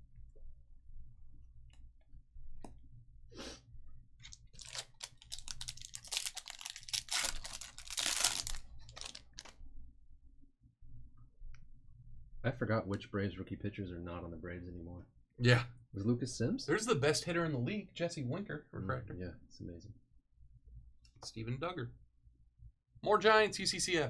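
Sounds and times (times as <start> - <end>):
foil wrapper tearing and crinkling: 4.3 - 9.5.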